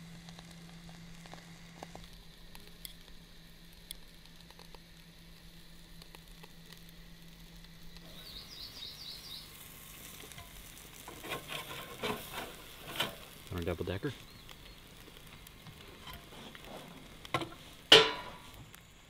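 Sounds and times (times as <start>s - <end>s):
patties sizzling on a barbecue: 0.0s - 19.0s
high bird trill: 8.1s - 9.6s.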